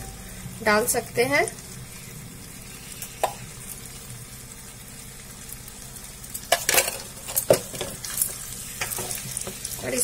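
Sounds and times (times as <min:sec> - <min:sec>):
potatoes sizzling in a pan: 0:00.0 - 0:10.0
spatula scraping a pan: 0:06.6 - 0:10.0.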